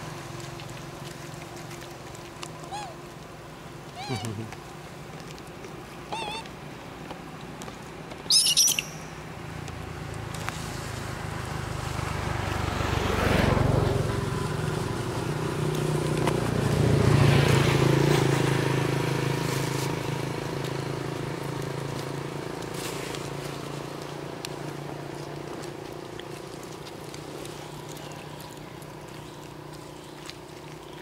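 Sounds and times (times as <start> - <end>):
vehicles passing on road: 0.0 - 31.0
brief shrill squeal: 8.3 - 9.1.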